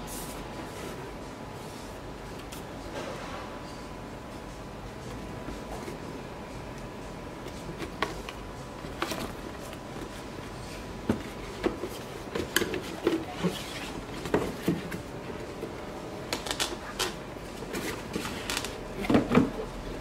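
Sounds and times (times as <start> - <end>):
cardboard boxes tapping and scraping: 10.9 - 16.6, 17.6 - 19.7.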